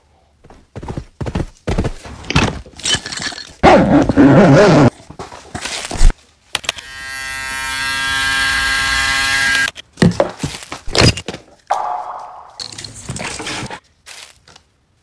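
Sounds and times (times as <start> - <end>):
electric shaver buzzing: 6.8 - 9.7
sharp knocks: 11.7 - 12.8.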